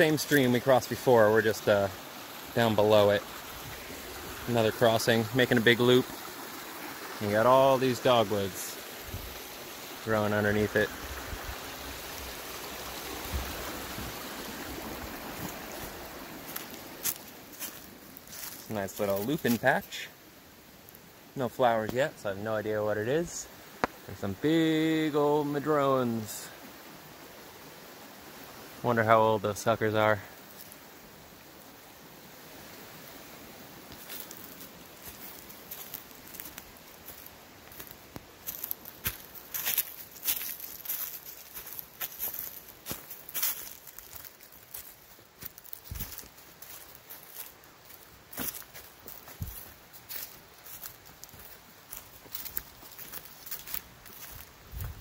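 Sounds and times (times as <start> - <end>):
stream water rushing: 0.0 - 55.0
footsteps crunching on dry leaves: 10.6 - 20.0, 30.4 - 30.8, 33.8 - 55.0.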